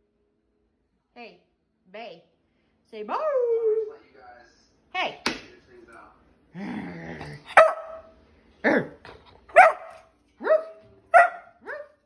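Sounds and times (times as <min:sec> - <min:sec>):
puppy growling: 0:06.5 - 0:07.9
puppy barking: 0:07.4 - 0:08.1, 0:08.7 - 0:12.0.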